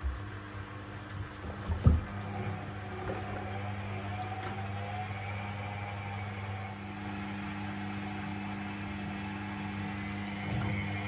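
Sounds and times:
washing machine drum motor hum: 0.0 - 11.0.

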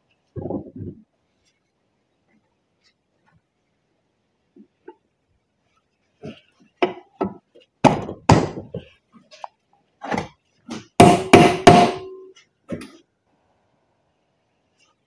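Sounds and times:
hammer striking metal: 11.0 - 12.3.

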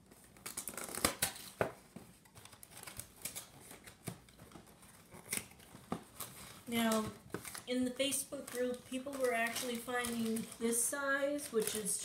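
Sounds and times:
cereal box packaging crackling: 5.1 - 12.0.

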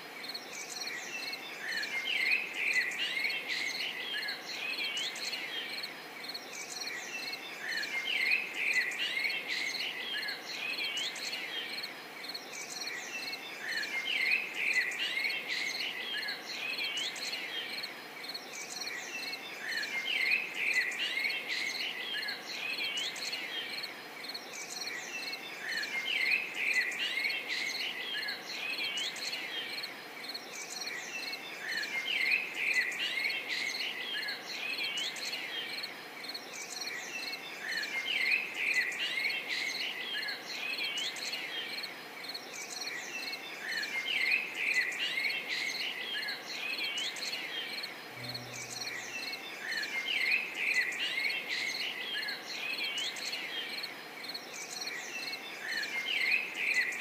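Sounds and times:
small birds chirping: 0.0 - 57.0
pulsing insect trill: 48.1 - 49.1.

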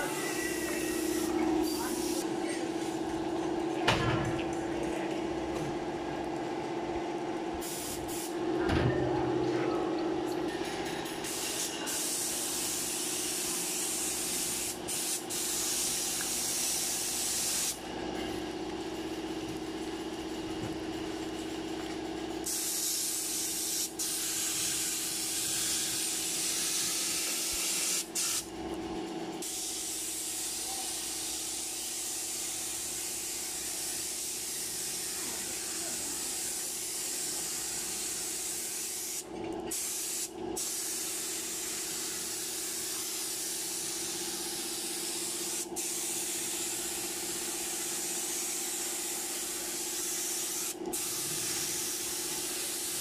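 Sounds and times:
paint spray gun hissing: 0.0 - 2.2, 7.6 - 8.4, 11.2 - 17.8, 22.4 - 28.5, 29.4 - 53.0.

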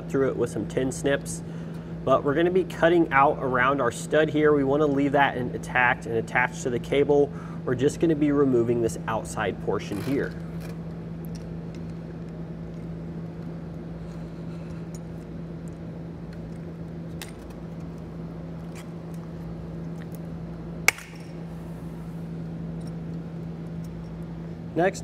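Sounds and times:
low steady hum: 0.0 - 25.0
metal snapping: 20.8 - 21.4.

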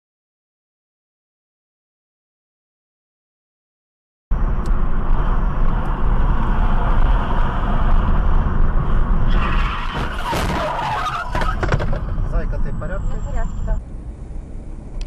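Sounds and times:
car road and engine noise: 4.3 - 15.0
tyre squeal: 9.1 - 13.8.

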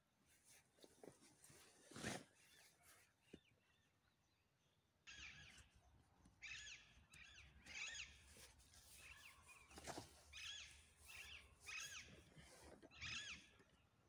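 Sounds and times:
brief rustle: 0.3 - 3.4, 8.3 - 13.4
faint bird chirps: 2.4 - 14.0.

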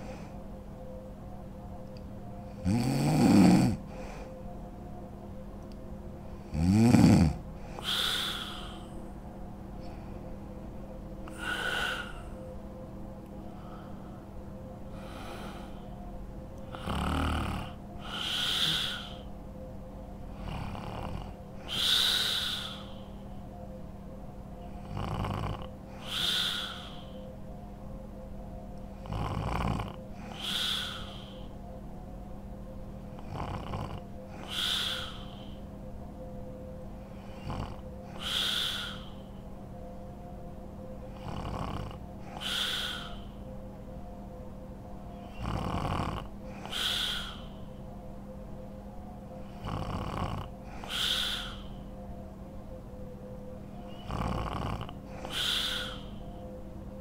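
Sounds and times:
woman snoring: 2.5 - 3.8, 6.5 - 9.0, 11.3 - 12.3, 16.6 - 19.3, 20.3 - 23.0, 24.8 - 27.2, 29.0 - 31.4, 33.1 - 35.6, 37.2 - 39.2, 41.1 - 43.2, 45.4 - 47.5, 49.4 - 51.6, 53.9 - 56.1.

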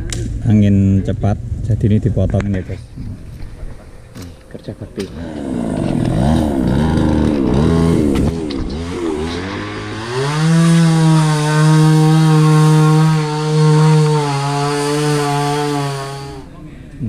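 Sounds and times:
chainsaw revving: 5.0 - 16.5.

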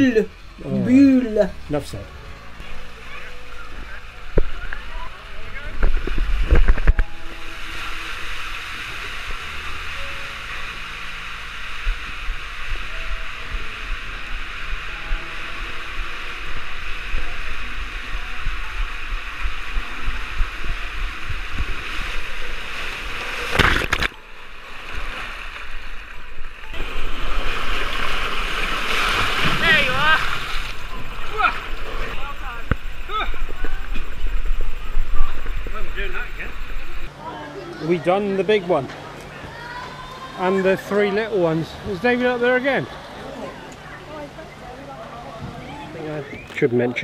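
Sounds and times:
water rushing through a slide: 5.9 - 36.6
loud splash: 21.6 - 33.3.

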